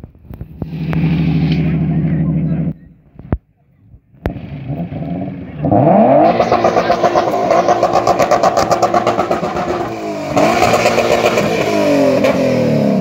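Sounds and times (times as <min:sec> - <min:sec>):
car engine revving hard: 0:04.3 - 0:13.0.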